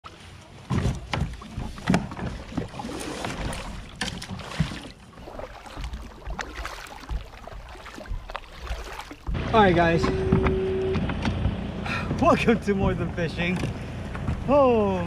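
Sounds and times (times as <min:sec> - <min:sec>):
paddle splashing through water: 0:00.1 - 0:09.6
gear knocking against kayak hull: 0:00.7 - 0:02.7.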